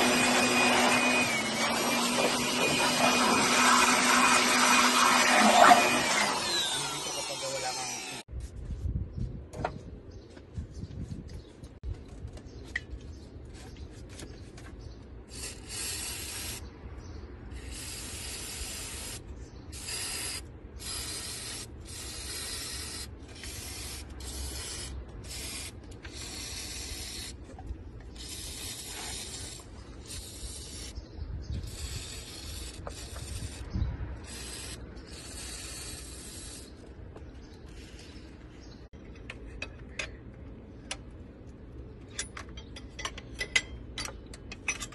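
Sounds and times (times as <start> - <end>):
pressurised spray hissing: 31.6 - 36.8.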